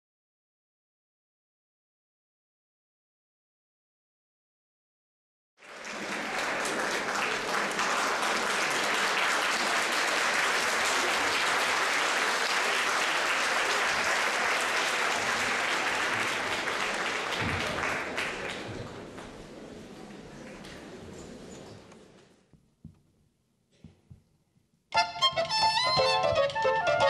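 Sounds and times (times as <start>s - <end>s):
audience applauding: 5.6s - 21.1s.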